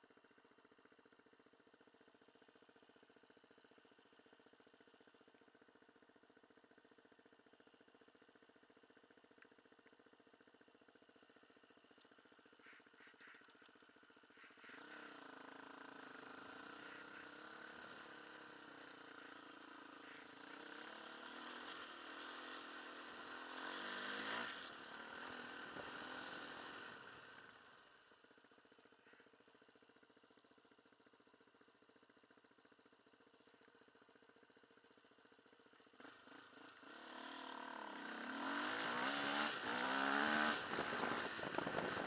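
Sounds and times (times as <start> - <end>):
motorcycle engine idling: 0.0 - 42.0
motorcycle riding away: 11.0 - 28.1, 35.4 - 42.0.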